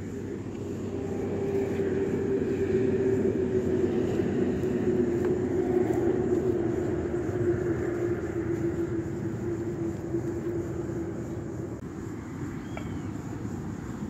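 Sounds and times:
spirit stove burning drone: 0:00.0 - 0:14.0.

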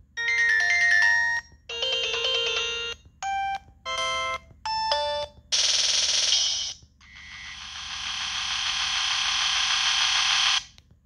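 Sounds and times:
ringtone drum pattern: 0:00.2 - 0:05.4.

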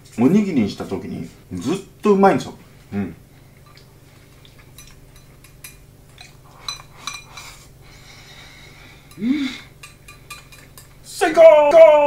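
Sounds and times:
chopsticks scraping porcelain bowl: 0:04.6 - 0:07.7
light ringing clinks: 0:09.8 - 0:11.0.

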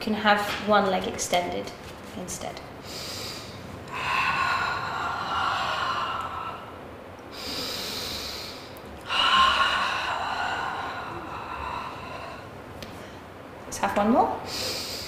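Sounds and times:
woman breathing forcefully: 0:02.8 - 0:13.6, 0:14.4 - 0:15.0.

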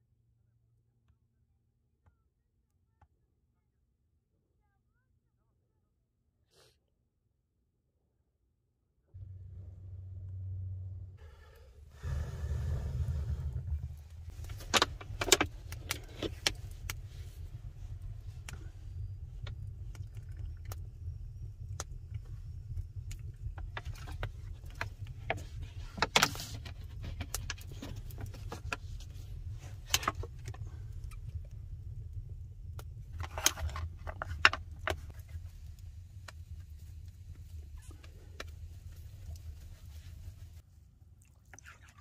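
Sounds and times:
low rumble: 0:09.0 - 0:40.6
wood fire crackling: 0:11.2 - 0:40.6.

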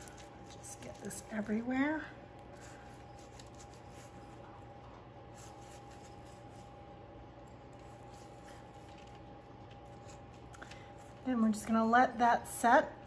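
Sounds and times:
faint steady hum: 0:00.0 - 0:13.0
scratchy brushing strokes: 0:02.5 - 0:04.5, 0:05.3 - 0:06.8.

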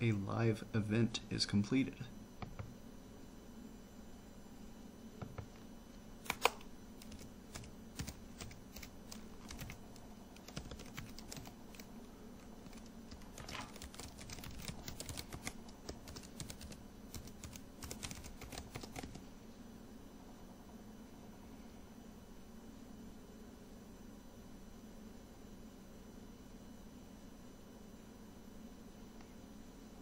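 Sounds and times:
typing on computer keyboard: 0:06.3 - 0:19.2.

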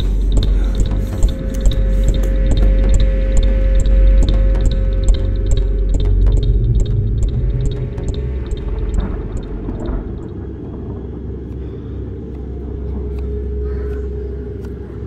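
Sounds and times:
sharp ticks: 0:00.0 - 0:10.3
low rumbling drone: 0:00.0 - 0:15.0.

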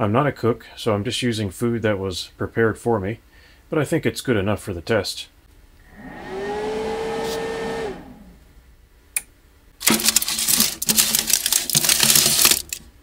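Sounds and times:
rising whine: 0:05.8 - 0:08.6
foil crinkle: 0:09.8 - 0:12.9.

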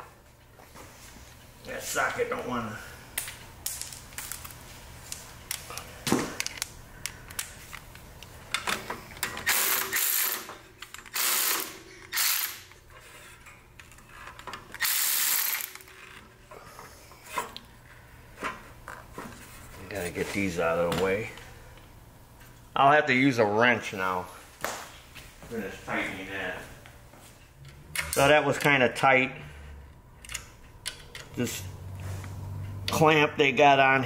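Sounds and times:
cordless ratchet driving screw: 0:09.4 - 0:12.6, 0:14.8 - 0:15.8.

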